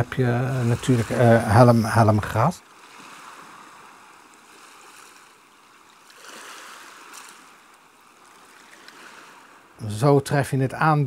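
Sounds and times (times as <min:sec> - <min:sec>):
water splashing and lapping: 0:00.0 - 0:09.8.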